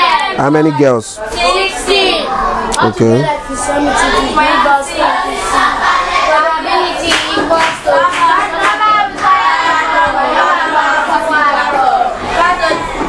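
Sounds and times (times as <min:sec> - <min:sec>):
children singing in chorus: 0:00.0 - 0:13.0
hand clapping: 0:07.0 - 0:09.4.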